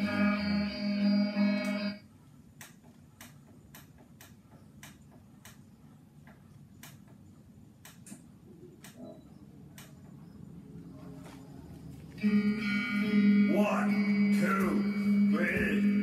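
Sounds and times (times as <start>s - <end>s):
guitar music: 0.0s - 2.0s, 12.2s - 16.0s.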